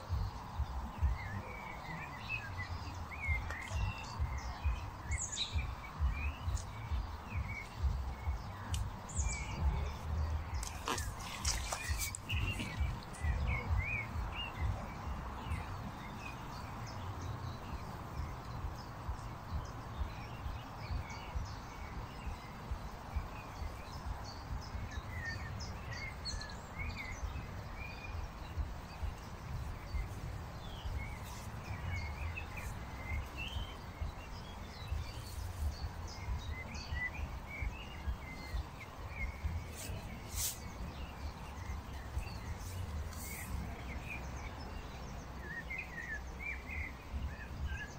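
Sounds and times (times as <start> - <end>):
low outdoor rumble: 0.0 - 25.9
small birds chirping: 0.0 - 47.9.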